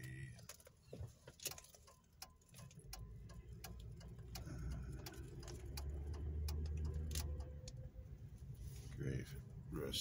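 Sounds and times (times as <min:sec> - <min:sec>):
turn signal clicking: 0:00.0 - 0:08.3
engine and road rumble: 0:00.0 - 0:10.0.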